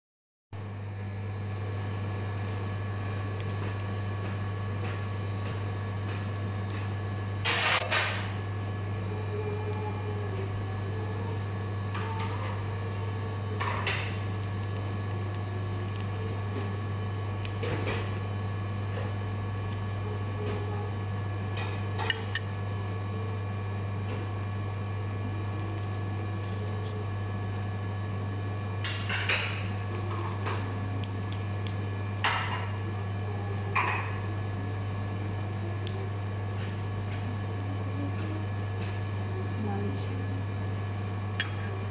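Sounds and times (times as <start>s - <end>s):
low electrical hum: 0.6s - 41.9s
spoon scraping ceramic plate: 22.0s - 22.4s.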